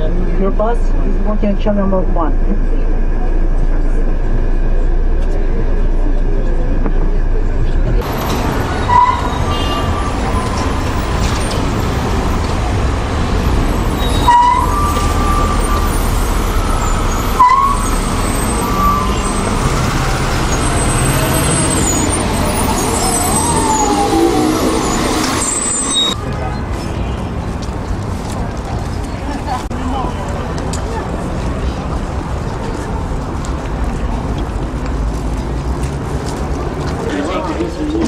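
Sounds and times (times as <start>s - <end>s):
street traffic: 0.0s - 38.0s
brief high squeaks: 14.0s - 26.2s.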